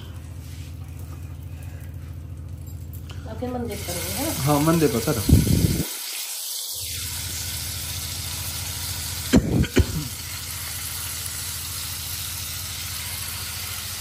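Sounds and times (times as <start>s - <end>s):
battered food frying in oil: 3.6s - 14.0s.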